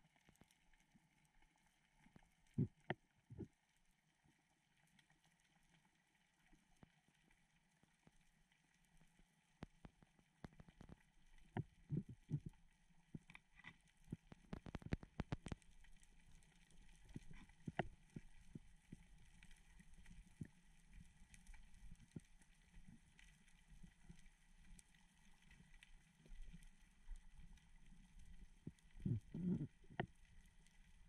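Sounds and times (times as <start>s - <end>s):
muffled underwater clicks and knocks: 2.5s - 3.5s, 9.6s - 31.0s.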